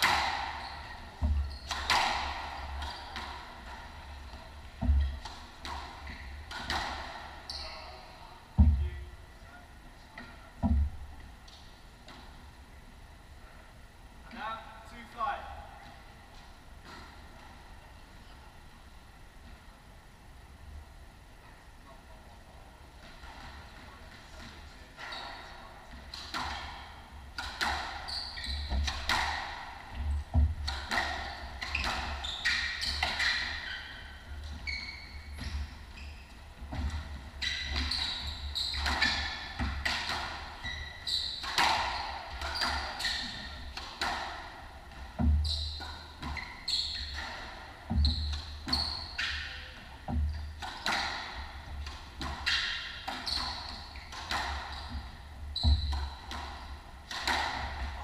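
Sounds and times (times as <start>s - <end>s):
shoes squeaking on wooden floor: 0.0s - 3.2s, 28.0s - 29.2s, 30.0s - 43.8s, 45.2s - 51.4s, 52.3s - 56.8s
squash ball hitting rackets and walls: 0.0s - 7.5s, 8.5s - 9.0s, 10.2s - 12.4s, 23.0s - 58.0s.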